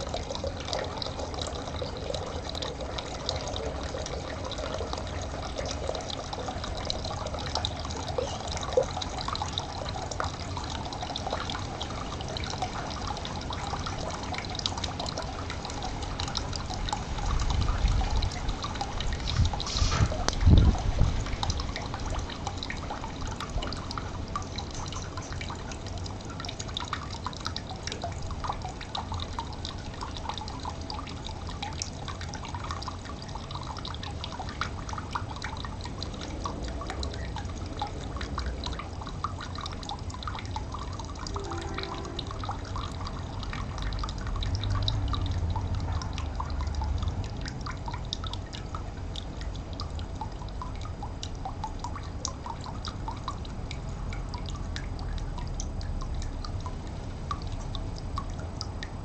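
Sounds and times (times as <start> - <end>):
stream trickling: 0.0 - 59.0
water drips and plinks: 0.0 - 59.0
low rumble: 40.8 - 46.2.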